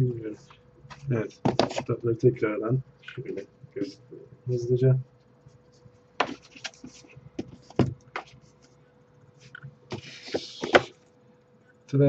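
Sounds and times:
books knocking in cardboard box: 1.4s - 1.8s, 6.2s - 6.5s, 7.4s - 8.0s.

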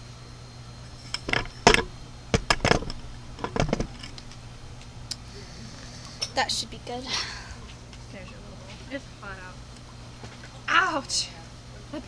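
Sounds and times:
dishes clattering: 0.9s - 4.8s.

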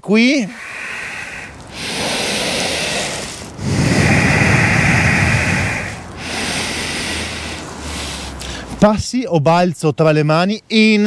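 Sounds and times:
deep breathing: 0.5s - 8.8s.

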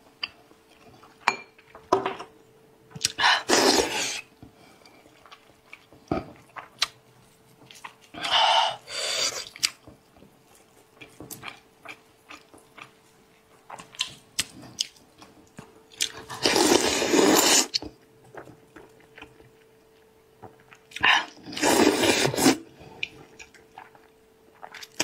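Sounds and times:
loud sucking slurps: 3.5s - 4.2s
wet chewing and mouth clicks: 5.0s - 7.0s, 9.4s - 16.3s.

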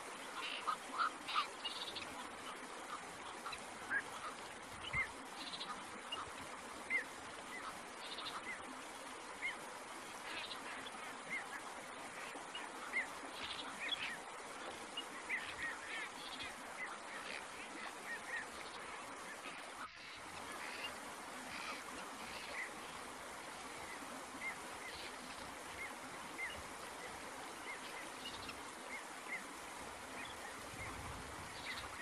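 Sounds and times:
steady hiss: 0.0s - 32.0s.

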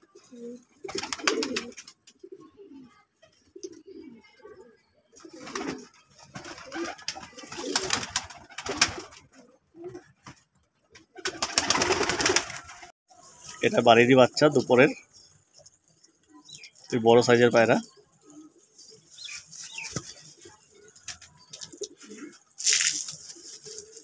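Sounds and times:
pigeons cooing: 0.0s - 10.2s, 17.5s - 24.0s
wings flapping: 0.8s - 2.2s, 5.2s - 10.4s, 11.0s - 13.6s, 19.2s - 24.0s.

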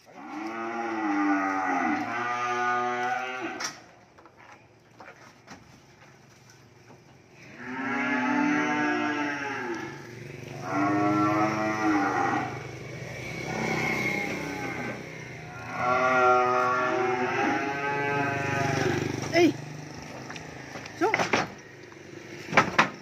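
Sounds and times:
calves mooing: 0.1s - 3.9s, 7.4s - 19.4s.

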